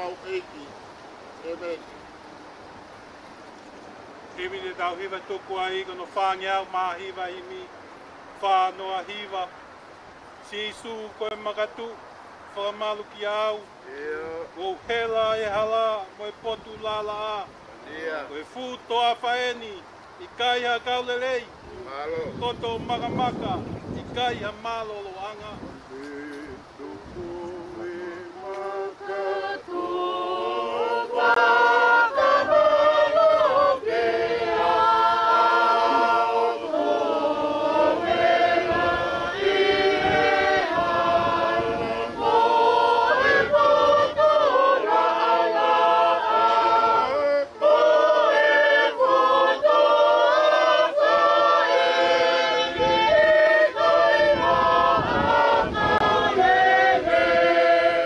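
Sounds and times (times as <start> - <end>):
group singing a cappella: 25.4 - 58.0.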